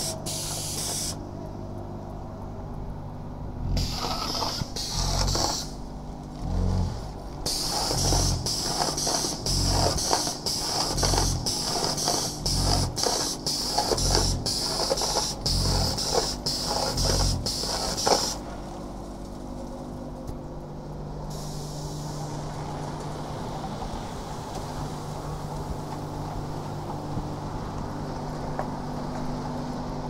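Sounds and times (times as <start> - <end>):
steady machine hum: 0.0 - 23.8
gravel rattling: 3.4 - 20.6
gravel pouring onto conveyor: 7.6 - 18.4.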